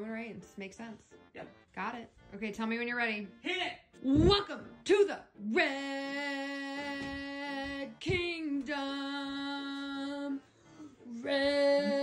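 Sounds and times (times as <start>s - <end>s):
person singing long held notes: 11.0s - 12.0s.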